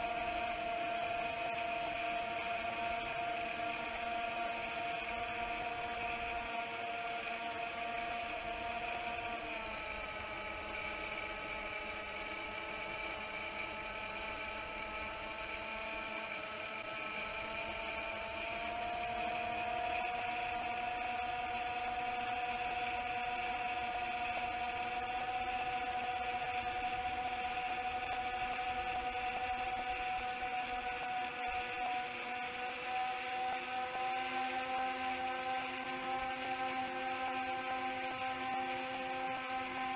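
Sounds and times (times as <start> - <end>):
drone motors whining: 0.0 - 39.9.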